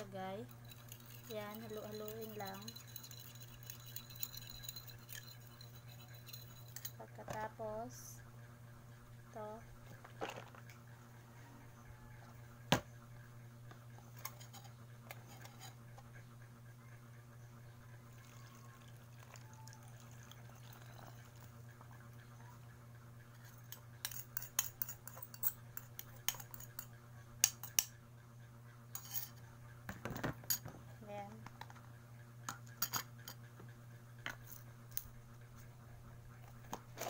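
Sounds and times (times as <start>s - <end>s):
metal spoon clinking on bowl: 0.5s - 7.0s, 23.6s - 27.9s
liquid pouring: 18.1s - 21.5s.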